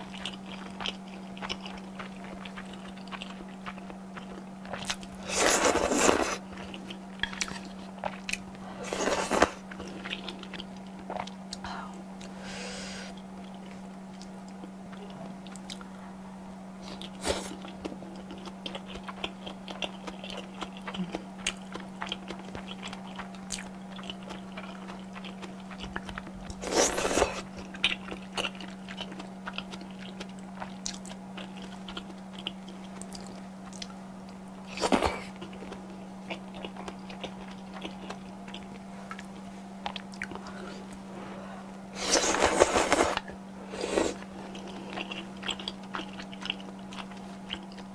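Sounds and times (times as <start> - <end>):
wet chewing: 0.0 - 11.6, 16.9 - 41.0, 44.0 - 47.9
slurping noodles: 42.0 - 44.2.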